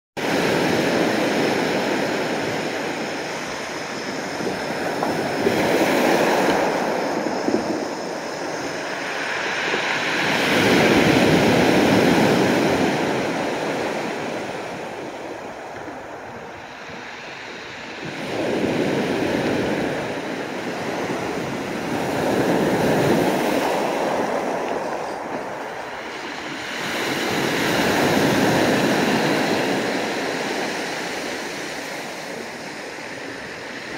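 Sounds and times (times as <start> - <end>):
waves breaking on pebble beach: 0.2 - 33.9.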